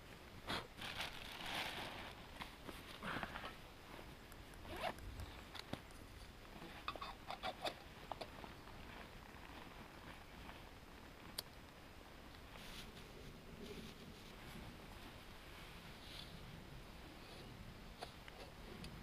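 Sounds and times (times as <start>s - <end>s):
rustling: 0.5s - 11.4s, 12.1s - 18.9s
light clicks and taps of gear: 4.2s - 8.4s
zipper drawn: 4.6s - 5.0s.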